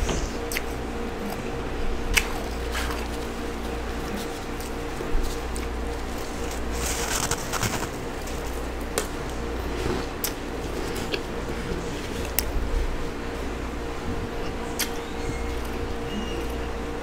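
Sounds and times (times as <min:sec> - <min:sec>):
steady low hum: 0:00.0 - 0:17.0
frost being crunched by chewing: 0:02.1 - 0:09.4.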